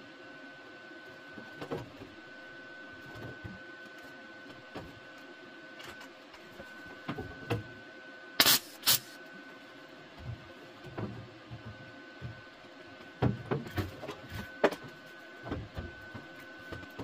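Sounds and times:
electrical hum: 0.0s - 17.0s
welder crackling: 8.4s - 9.2s.

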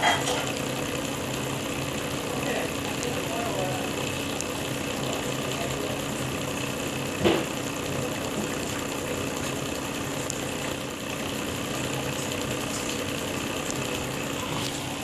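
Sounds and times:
magnetic motor humming and rattling: 0.0s - 15.0s.

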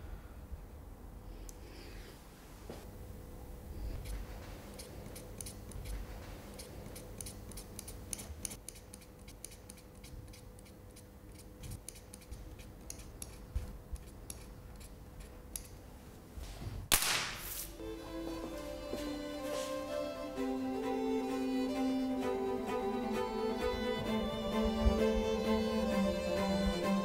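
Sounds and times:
faint steady hum: 0.0s - 27.0s
knife tip scratching paper: 4.0s - 15.8s.

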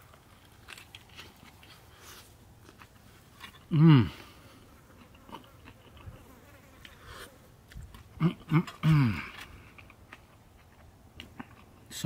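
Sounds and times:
man chewing: 0.0s - 11.9s
man humming mm: 3.7s - 4.5s, 8.2s - 9.4s.

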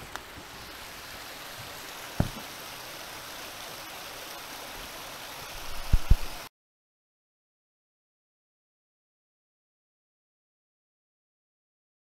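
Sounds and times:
waterfall rushing: 0.0s - 6.5s
sharp thump: 2.2s - 2.4s.

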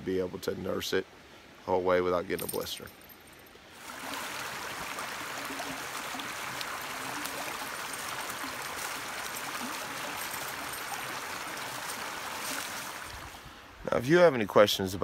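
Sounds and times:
creek water rushing and gurgling: 3.7s - 13.9s.

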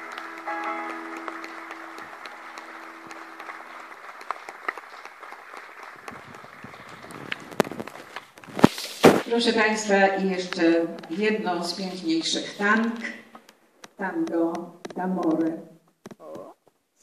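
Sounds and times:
piano chord ringing: 0.0s - 4.3s
audience applauding: 0.0s - 8.4s.

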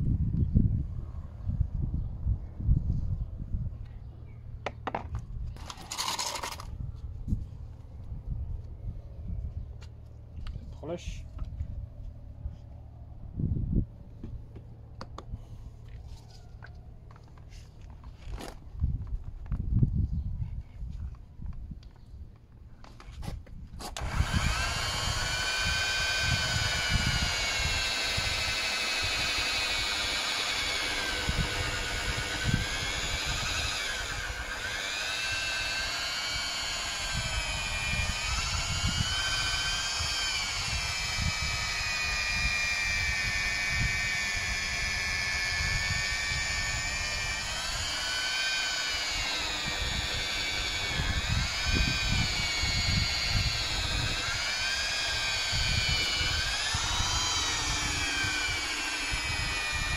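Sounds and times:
electric polisher motor whine: 23.8s - 59.9s.

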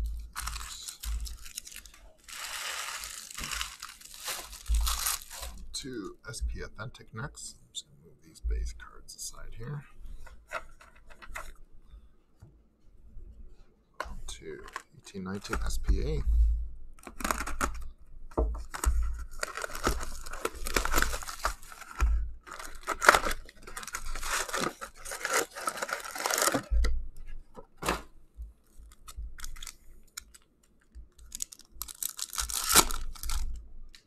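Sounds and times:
plastic wrap crinkling and tearing: 0.0s - 5.7s, 17.0s - 17.8s, 18.6s - 26.9s, 28.6s - 34.0s
cardboard handling: 0.3s - 5.6s, 18.6s - 26.8s
foil pack ripping: 0.3s - 5.6s, 19.3s - 26.8s, 31.3s - 33.5s
dull thumps: 4.4s - 5.3s.

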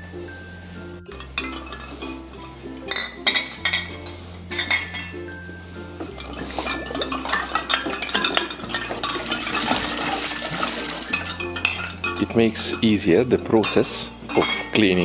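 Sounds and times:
background music with bass line: 0.0s - 15.0s
glass bottles clinking: 0.0s - 15.0s
water sloshing: 6.0s - 12.5s.

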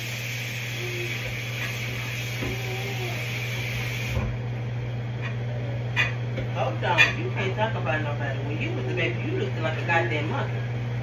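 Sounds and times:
steam hiss: 0.0s - 4.2s
range hood fan hum: 0.0s - 11.0s.

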